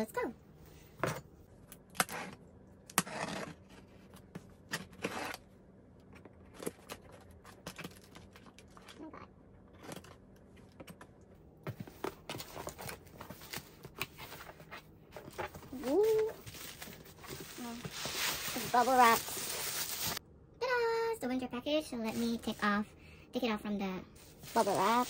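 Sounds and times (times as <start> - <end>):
cardboard rustling: 11.7 - 20.2, 24.2 - 25.0.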